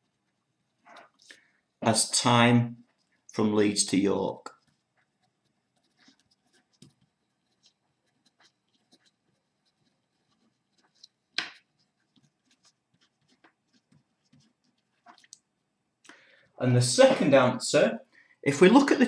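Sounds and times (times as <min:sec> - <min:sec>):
pen scratching on paper: 0:04.5 - 0:15.2.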